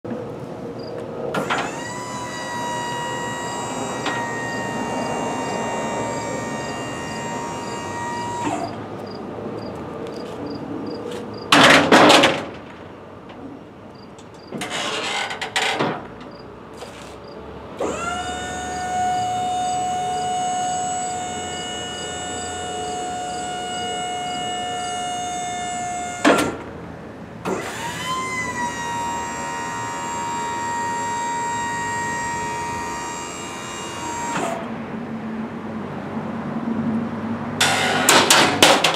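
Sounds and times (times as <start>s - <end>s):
hydraulic pump motor whining: 1.4s - 9.0s, 17.8s - 26.7s, 27.4s - 34.8s, 37.6s - 38.9s
metal platform clanks: 37.6s - 38.9s.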